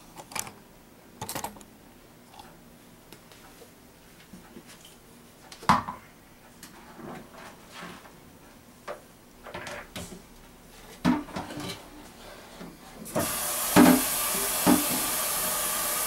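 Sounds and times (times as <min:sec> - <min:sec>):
blender jar knocking: 0:13.7 - 0:15.1.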